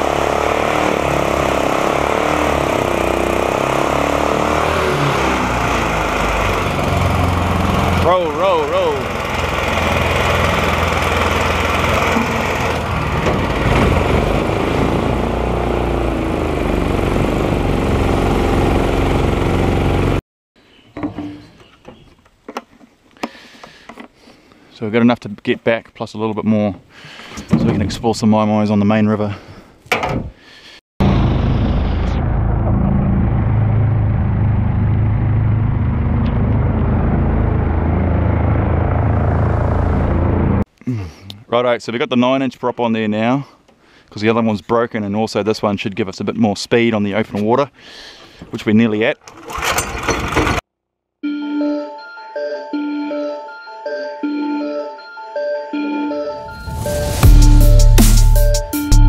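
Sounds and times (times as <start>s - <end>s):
small boat engine running: 0.0s - 20.2s, 33.4s - 40.6s.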